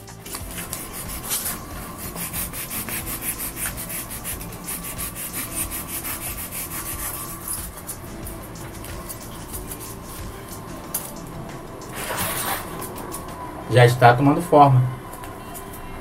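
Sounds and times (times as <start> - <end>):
knife cutting styrofoam: 0.3 - 8.0, 11.9 - 13.1.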